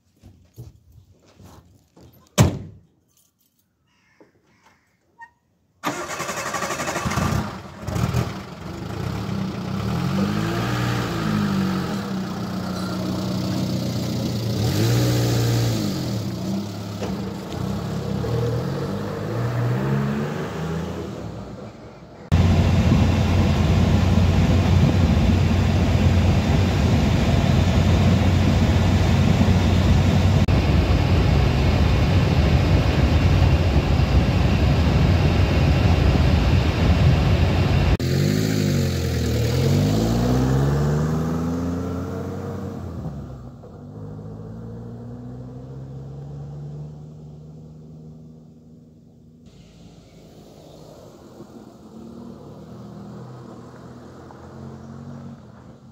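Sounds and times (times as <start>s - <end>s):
car engine revving: 5.9s - 55.8s
engine drone inside cabin: 22.2s - 38.0s.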